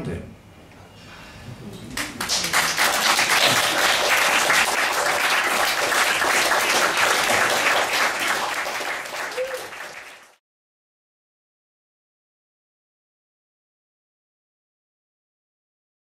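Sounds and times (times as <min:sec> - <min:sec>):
audience applauding: 0:01.9 - 0:10.4.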